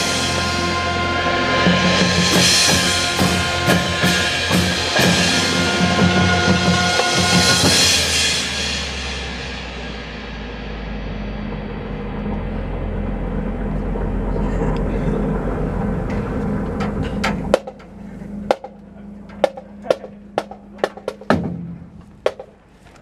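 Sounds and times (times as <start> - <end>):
marching band playing: 0.0 - 9.9, 16.9 - 22.6
drums and cymbals: 0.0 - 11.8, 16.9 - 17.9, 18.5 - 18.8, 19.4 - 22.5
low held tone: 0.0 - 22.7
sharp clicks and knocks: 16.1 - 23.0.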